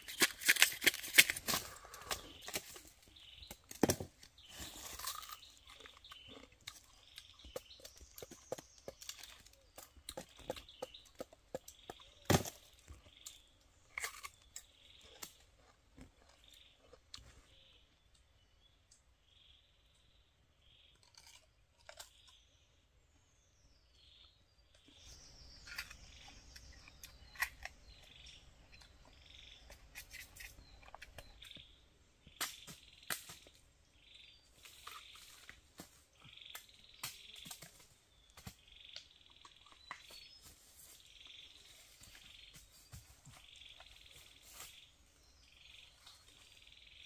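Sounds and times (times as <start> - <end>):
bamboo snapping and rustling: 0.0 - 17.3, 25.0 - 33.6, 34.5 - 41.0.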